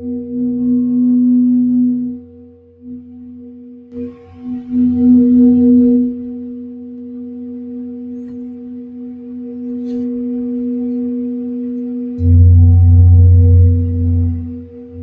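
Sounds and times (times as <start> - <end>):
metal singing bowl ringing: 0.0 - 15.0
loud low hum: 11.7 - 15.0.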